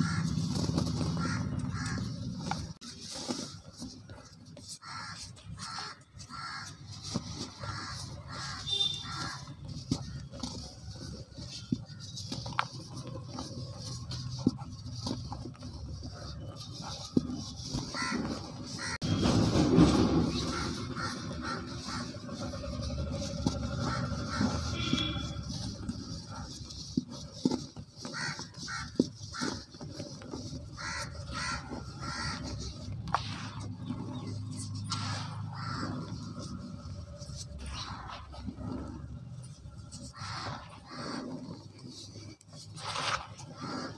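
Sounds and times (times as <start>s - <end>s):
harsh bird calls: 19.8s - 25.7s, 30.7s - 38.4s.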